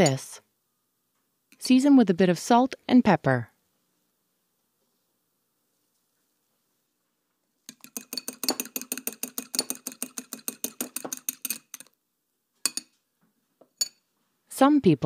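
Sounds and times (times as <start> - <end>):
fork clicking against glass bowl: 7.7 - 11.9.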